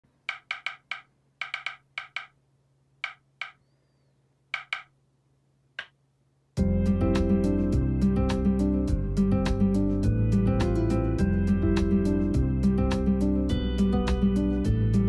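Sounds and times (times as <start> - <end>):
hollow wooden taps: 0.3 - 2.4, 4.6 - 4.9
acoustic guitar music: 6.6 - 15.0.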